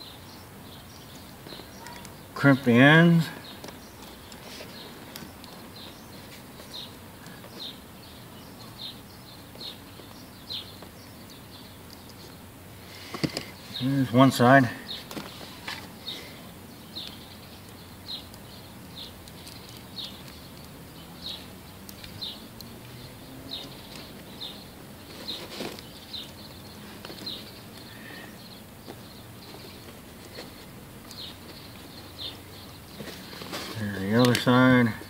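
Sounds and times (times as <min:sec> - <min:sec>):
small bird chirping: 0:00.0 - 0:35.0.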